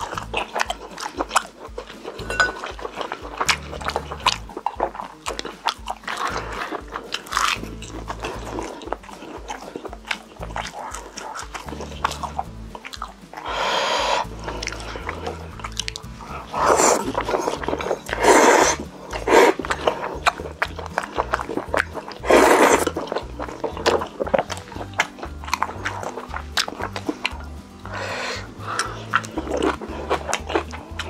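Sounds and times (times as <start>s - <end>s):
wet chewing and smacking: 0.0s - 31.0s
loud slurps: 6.0s - 12.5s, 13.4s - 24.2s, 25.8s - 30.8s.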